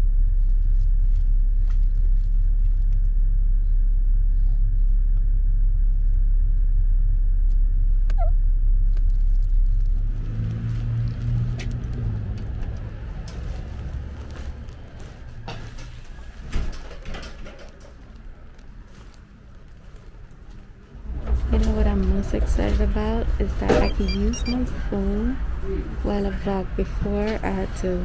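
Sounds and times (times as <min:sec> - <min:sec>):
car driving rumble from cabin: 0:05.8 - 0:16.4, 0:21.0 - 0:28.0.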